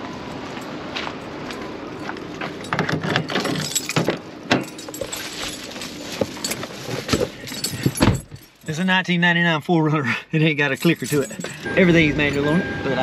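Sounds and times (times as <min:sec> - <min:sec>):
keys jangling: 0:02.5 - 0:08.8, 0:10.7 - 0:11.7
key unlocking car door: 0:02.6 - 0:05.7, 0:06.4 - 0:08.7, 0:10.8 - 0:11.7.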